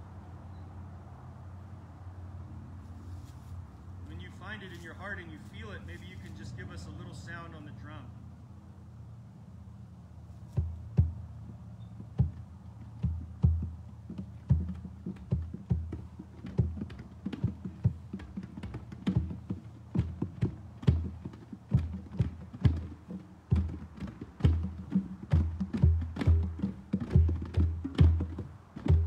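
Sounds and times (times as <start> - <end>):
hand drums struck freely: 10.6 - 29.0.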